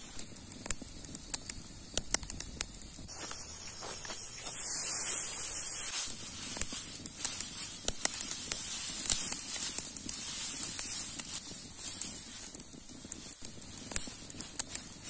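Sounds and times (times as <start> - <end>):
dry straw rustling and crackling: 3.1 - 15.0.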